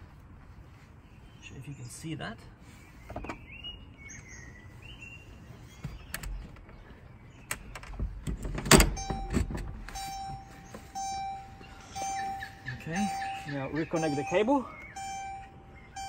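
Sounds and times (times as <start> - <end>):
car seat clicks and metal clunks: 7.5 - 11.4
high electronic tone: 8.9 - 16.0.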